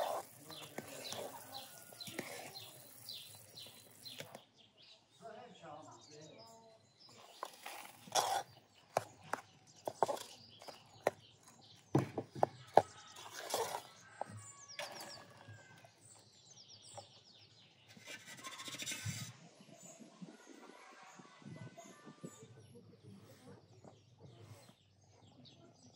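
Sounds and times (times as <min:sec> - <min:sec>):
metal ladle scraping a pot: 0:00.0 - 0:04.2, 0:07.2 - 0:09.1, 0:13.2 - 0:15.2, 0:17.9 - 0:19.4
small birds chirping: 0:00.0 - 0:25.9.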